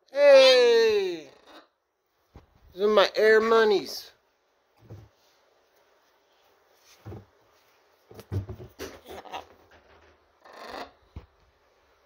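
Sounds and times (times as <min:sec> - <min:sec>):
sneakers knocking and dropping: 0:07.0 - 0:07.4, 0:08.1 - 0:09.0.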